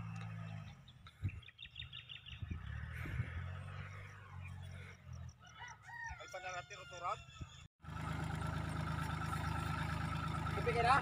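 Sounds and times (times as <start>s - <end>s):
distant tractor engine hum: 0.0s - 5.5s, 7.8s - 11.0s
birds chirping: 0.0s - 7.7s.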